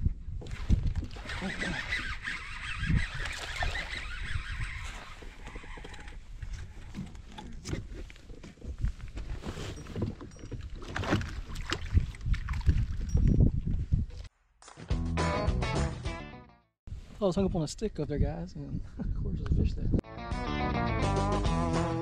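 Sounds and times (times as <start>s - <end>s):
wind buffeting microphone: 0.0s - 14.3s, 16.9s - 20.0s
water lapping against a hull: 0.4s - 13.3s
fishing gear knocking and rattling: 4.8s - 14.3s.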